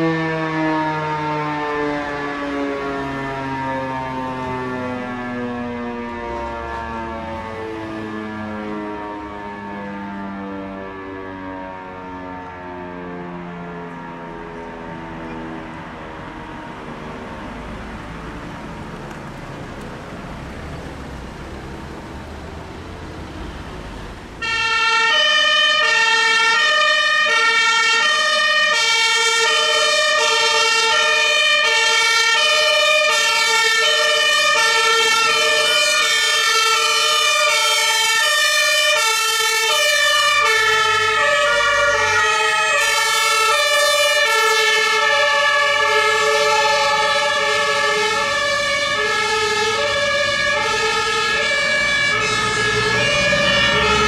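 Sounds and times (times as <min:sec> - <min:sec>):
two-tone fire engine siren: 0:00.0 - 0:54.0
low vehicle engine rumble: 0:13.8 - 0:24.4.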